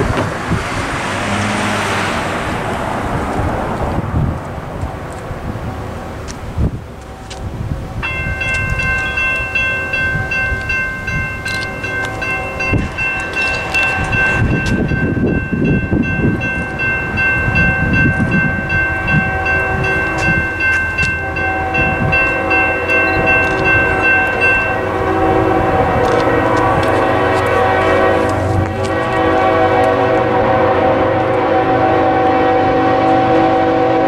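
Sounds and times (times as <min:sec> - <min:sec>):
crossing bell ringing: 0:07.0 - 0:34.0
locomotive horn: 0:08.4 - 0:17.2, 0:17.8 - 0:34.0.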